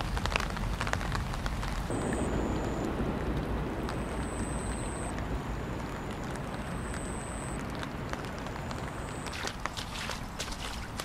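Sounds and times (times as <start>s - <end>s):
steady rain: 0.0s - 11.0s
faint high whine: 1.9s - 9.6s
running water: 3.8s - 11.0s.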